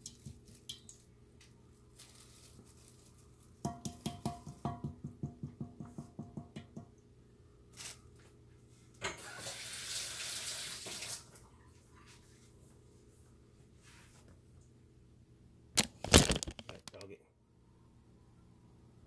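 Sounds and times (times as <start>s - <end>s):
hand slapping batter in steel bowl: 3.6s - 6.8s.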